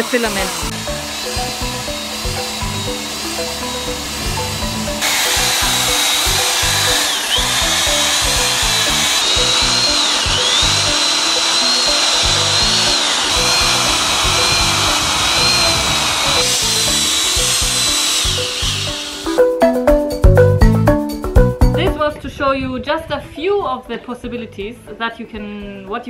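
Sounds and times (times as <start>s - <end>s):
hot air hiss: 0.0s - 3.6s, 5.0s - 19.4s
motor whine: 0.0s - 19.4s
background music with beat: 16.5s - 22.0s.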